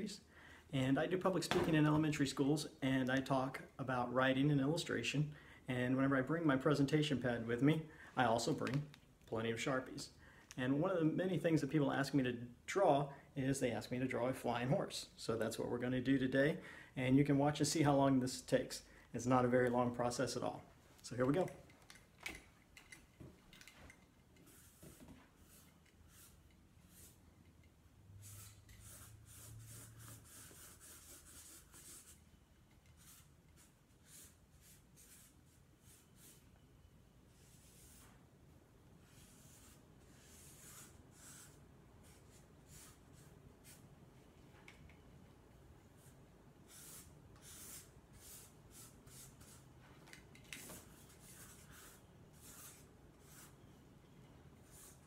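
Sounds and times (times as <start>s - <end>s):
marker strokes on paper: 24.4s - 27.2s, 28.2s - 32.2s, 32.9s - 36.5s, 37.3s - 38.2s, 39.0s - 43.8s, 46.0s - 49.7s, 50.6s - 53.6s, 54.6s - 55.0s.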